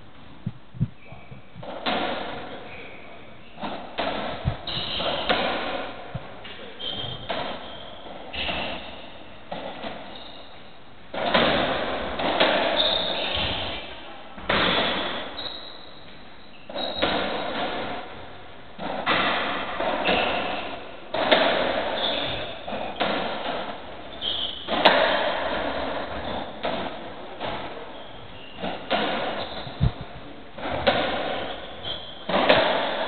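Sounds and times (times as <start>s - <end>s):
ball knocks echoing in court: 3.6s - 7.7s, 11.1s - 15.4s, 18.8s - 23.8s, 24.5s - 28.0s, 28.6s - 33.0s
shoes squeaking on wooden floor: 4.4s - 5.3s, 6.2s - 9.1s, 10.1s - 10.6s, 12.7s - 13.8s, 14.6s - 17.5s, 19.9s - 23.3s, 24.1s - 26.6s, 27.5s - 33.0s.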